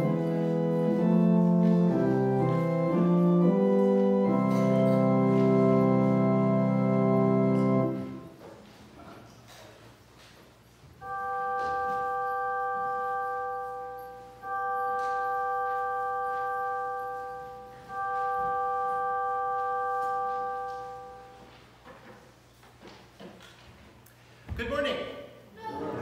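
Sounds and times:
bell ringing: 0:11.0 - 0:21.4.

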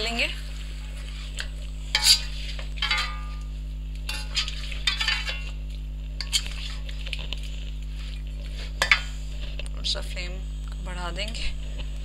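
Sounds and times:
metal spoon scraping a pan: 0:01.9 - 0:03.4, 0:04.1 - 0:05.6, 0:06.2 - 0:06.8.

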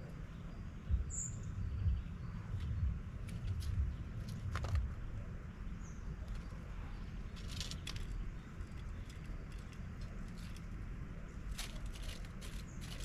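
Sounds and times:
distant city rumble: 0:00.0 - 0:13.0
faint bird chirp: 0:00.0 - 0:13.0
birds pecking seeds on metal: 0:06.1 - 0:13.0.

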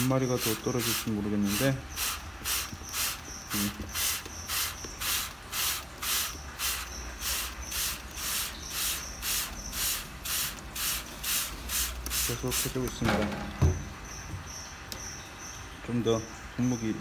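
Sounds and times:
spray bottle hissing: 0:00.0 - 0:12.9.

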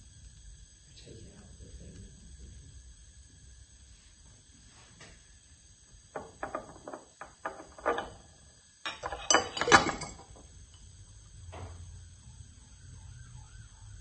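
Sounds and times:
metal spoon clinking on glass jar: 0:08.9 - 0:10.4.

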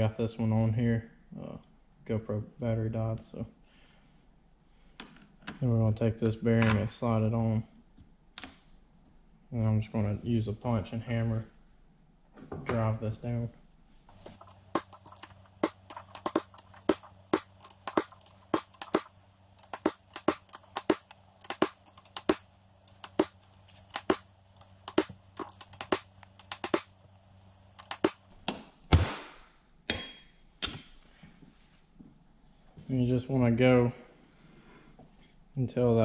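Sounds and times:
hammer striking steel punch: 0:28.9 - 0:31.0.

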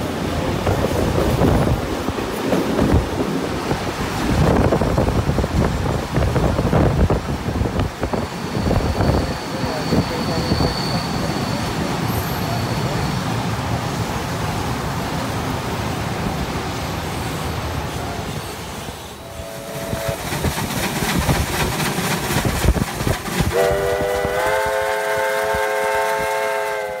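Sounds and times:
train rumble: 0:00.0 - 0:27.0
locomotive chime whistle: 0:08.3 - 0:13.3, 0:23.5 - 0:27.0
steam locomotive knocks and clanks: 0:19.7 - 0:24.7.

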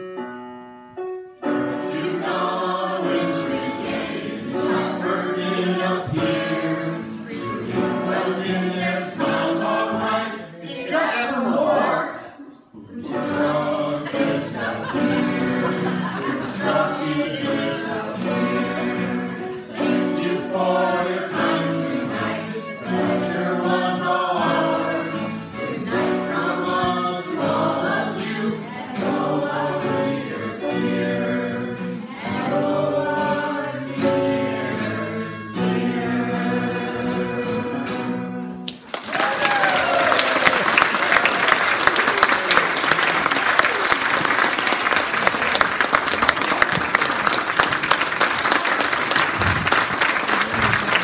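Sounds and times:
acoustic guitar: 0:00.0 - 0:10.5, 0:13.0 - 0:38.9
group of people singing: 0:01.4 - 0:38.7.

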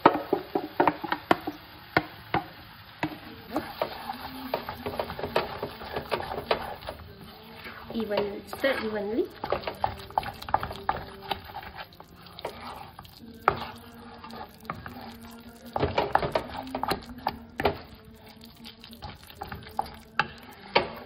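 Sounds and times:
spatula scraping and knocking wok: 0:00.0 - 0:21.0.

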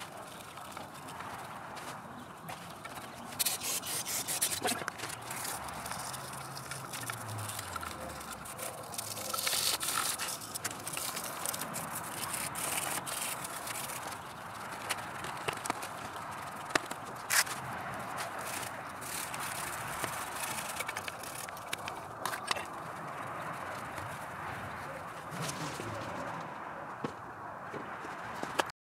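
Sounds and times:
bristle brush scrubbing metal: 0:03.2 - 0:13.6.

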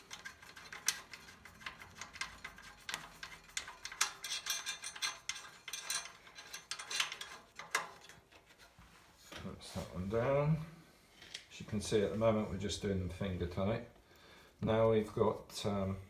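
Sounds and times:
metallic clicks and scrapes: 0:00.0 - 0:09.4.

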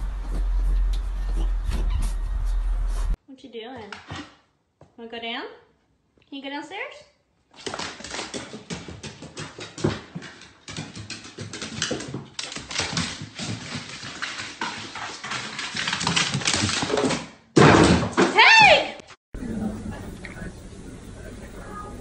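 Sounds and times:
dog paws clattering on wooden stairs: 0:07.6 - 0:17.3.

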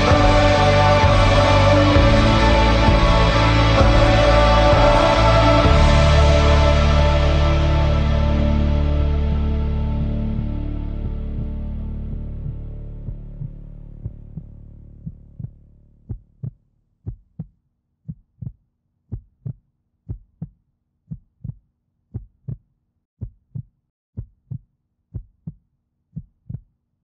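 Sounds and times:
heartbeat thumps: 0:00.0 - 0:06.5, 0:13.0 - 0:17.5, 0:18.1 - 0:22.6, 0:26.2 - 0:26.7
music: 0:00.0 - 0:16.2.

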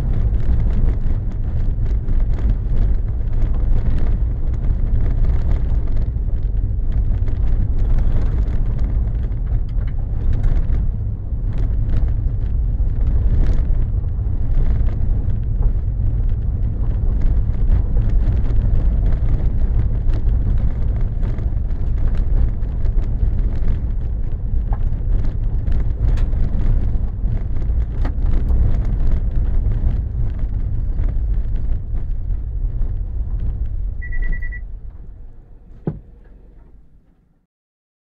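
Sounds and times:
car engine and tyre rumble: 0:00.0 - 0:37.5
short electronic beep: 0:34.0 - 0:34.7
thump: 0:35.6 - 0:36.7.

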